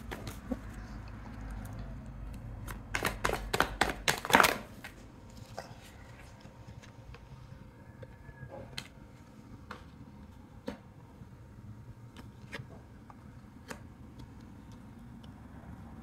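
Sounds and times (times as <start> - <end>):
cards shuffling: 0.0 - 0.9, 2.6 - 7.1.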